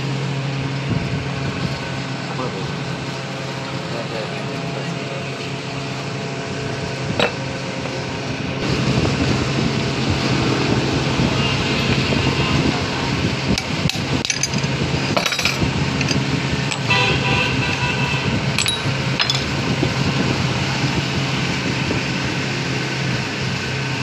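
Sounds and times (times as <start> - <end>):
metal knocks and clinks: 13.6 - 17.0, 18.6 - 19.6.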